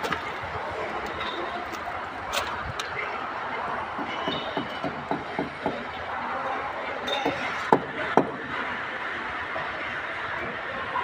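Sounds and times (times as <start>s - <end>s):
sharp knocks: 4.0s - 5.8s.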